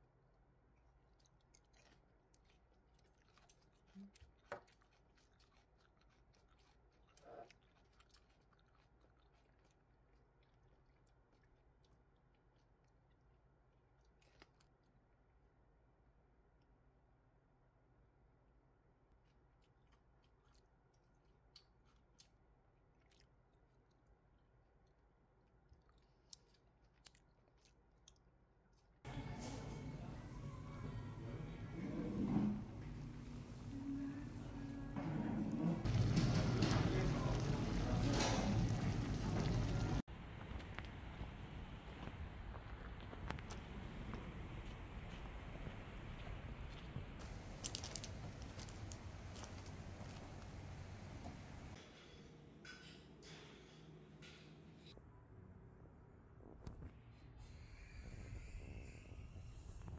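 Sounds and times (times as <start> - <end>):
crunchy bell pepper chewing: 0.8 - 15.0, 19.1 - 29.0.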